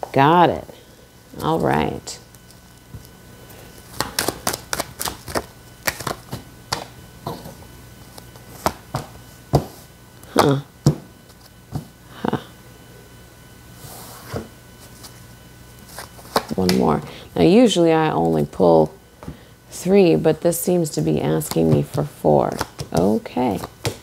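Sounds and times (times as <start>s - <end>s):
cards being shuffled: 1.3s - 6.9s, 15.8s - 17.0s, 21.3s - 24.0s.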